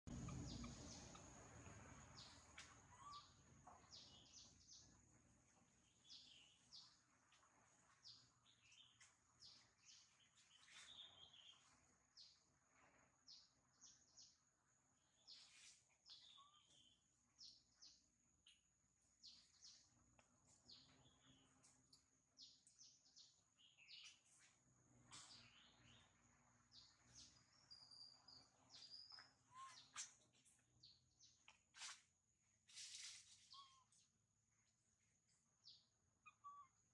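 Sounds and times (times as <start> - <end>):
high bird chirps: 28.7 - 30.2, 33.4 - 34.0, 36.2 - 36.8.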